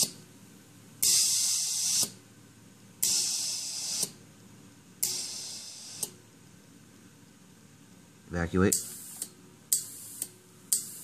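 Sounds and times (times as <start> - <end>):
compressed air hissing: 1.0 - 2.2, 3.0 - 4.2, 5.0 - 6.2, 8.7 - 11.0
valve click: 1.0 - 2.2, 3.0 - 4.2, 5.0 - 6.2.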